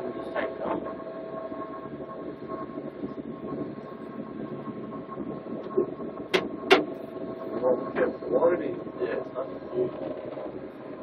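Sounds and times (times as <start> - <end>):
boat engines rumbling with faint whine: 0.0 - 11.0
sharp knocks: 6.3 - 7.0.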